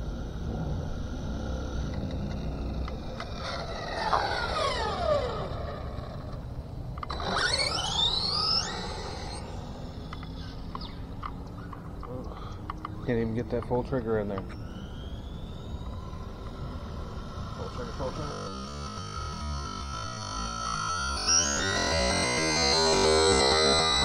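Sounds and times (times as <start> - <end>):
low rumble: 0.0 - 7.0
electric motor whining: 0.0 - 24.0.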